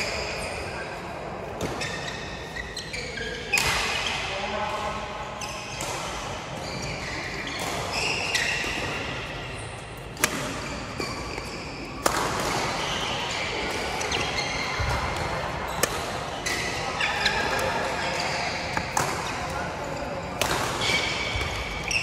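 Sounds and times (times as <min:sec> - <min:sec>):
court background noise: 0:00.0 - 0:22.0
racket hitting shuttlecock: 0:10.1 - 0:11.4, 0:12.0 - 0:17.6, 0:18.2 - 0:19.6, 0:20.4 - 0:22.0.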